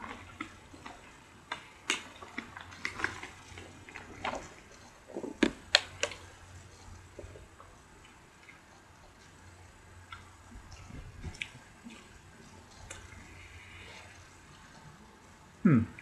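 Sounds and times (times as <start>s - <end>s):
soft chewing: 0.0s - 16.0s.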